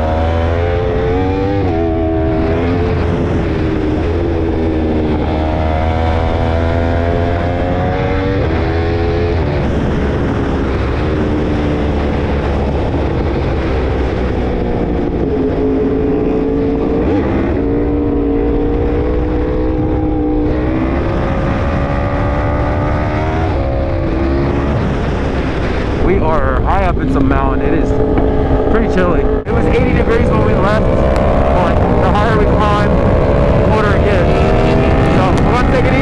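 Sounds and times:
low wind rumble on microphone: 0:00.0 - 0:36.0
motorcycle engine revving: 0:00.0 - 0:36.0.

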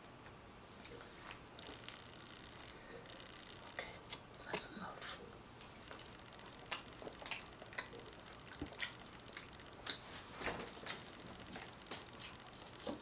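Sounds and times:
mouth eating sounds: 0:00.8 - 0:11.1.

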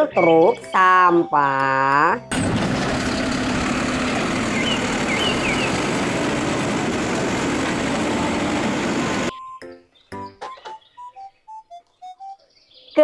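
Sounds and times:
diesel truck engine running: 0:02.2 - 0:09.3
hydraulic arm lifting: 0:02.3 - 0:09.3.

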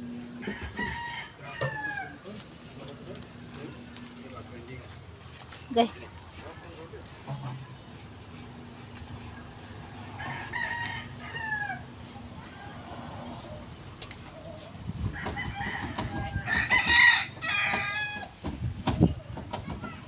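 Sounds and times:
rooster crowing: 0:00.4 - 0:02.2, 0:09.5 - 0:13.7, 0:15.1 - 0:18.4.

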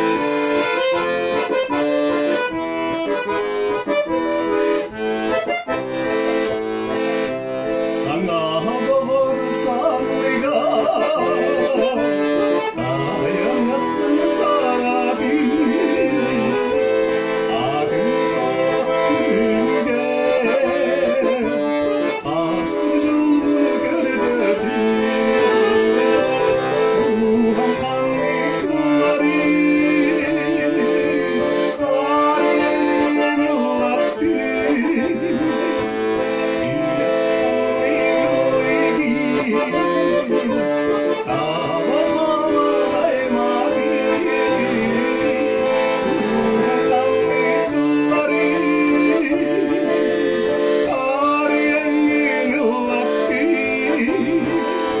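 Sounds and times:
accordion playing a tune: 0:00.0 - 0:55.0.

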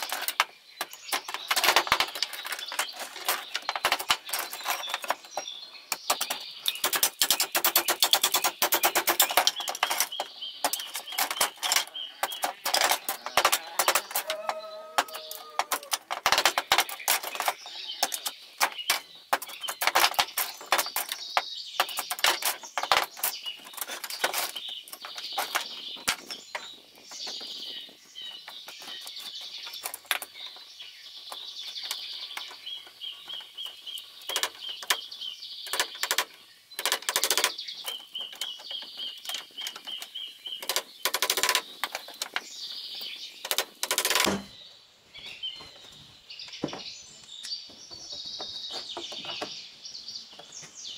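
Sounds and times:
knocking and clattering: 0:00.0 - 0:26.7, 0:43.5 - 0:44.5
birds chirping: 0:00.0 - 0:50.9.

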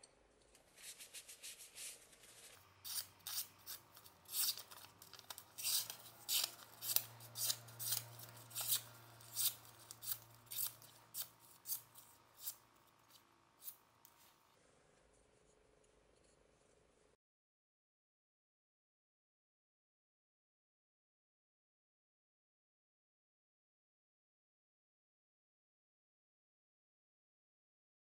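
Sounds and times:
knife slicing paper: 0:00.7 - 0:13.8.

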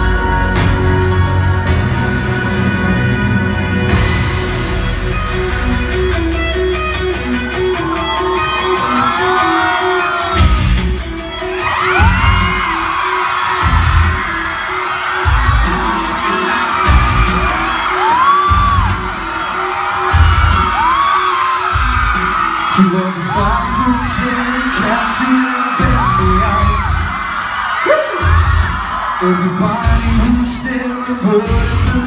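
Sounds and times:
live pop music with bass beat: 0:00.0 - 0:32.0
audience whooping: 0:06.7 - 0:32.0.

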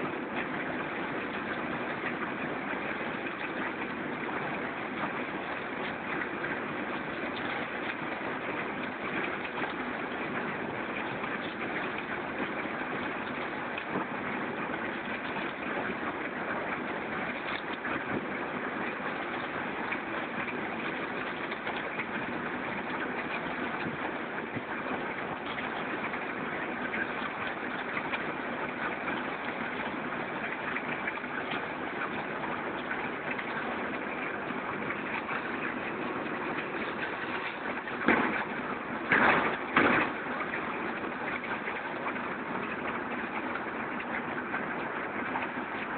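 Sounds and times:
concrete mixer running: 0:00.0 - 0:45.9.

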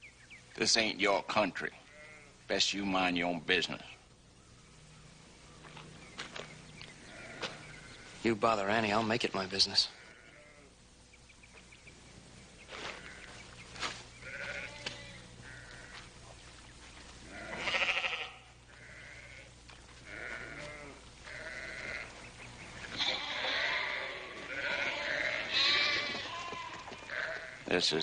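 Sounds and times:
sheep bleating: 0:01.8 - 0:02.4, 0:07.0 - 0:08.2, 0:09.8 - 0:10.8, 0:12.8 - 0:13.4, 0:14.2 - 0:16.1, 0:17.2 - 0:22.2, 0:22.9 - 0:28.0.

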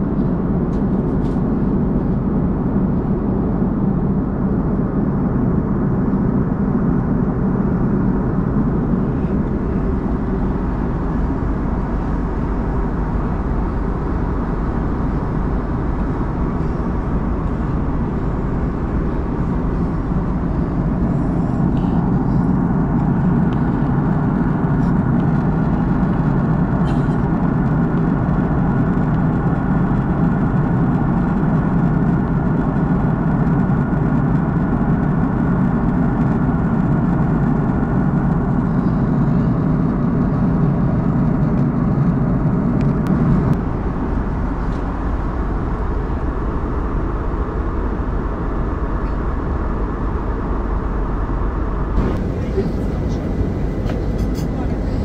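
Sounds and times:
airliner cabin rumble: 0:00.0 - 0:55.0.

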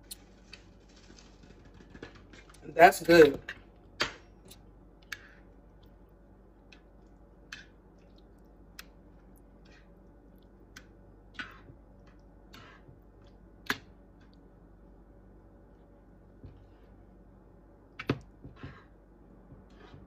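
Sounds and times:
spoon scraping pot: 0:12.6 - 0:12.9.

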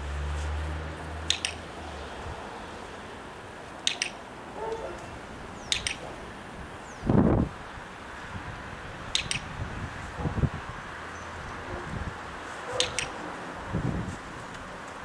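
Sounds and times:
box clicker clicking: 0:01.3 - 0:01.6, 0:03.9 - 0:04.2, 0:05.7 - 0:06.0, 0:09.2 - 0:09.5, 0:12.8 - 0:13.2.

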